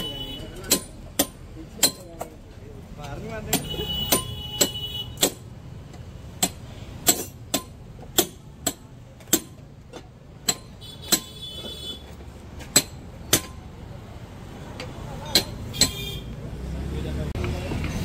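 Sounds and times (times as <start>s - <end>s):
hammer striking metal rim: 3.5s - 5.5s, 10.4s - 11.4s.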